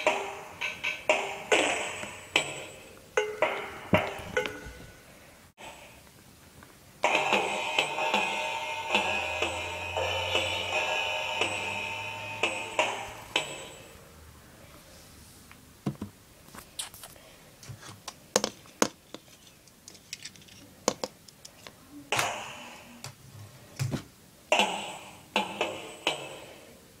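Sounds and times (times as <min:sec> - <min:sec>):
electronic toy drum hits: 0:00.0 - 0:04.8, 0:07.0 - 0:13.9, 0:22.1 - 0:22.7.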